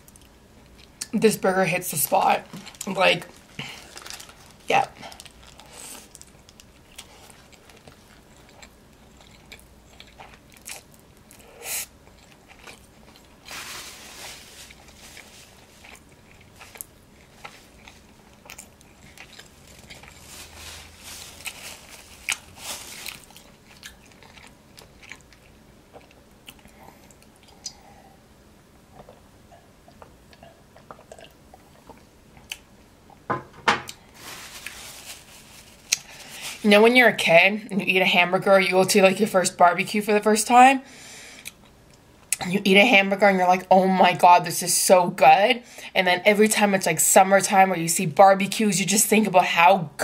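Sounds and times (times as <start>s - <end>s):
person chewing food: 2.5s - 13.6s, 14.2s - 28.0s, 28.9s - 33.3s.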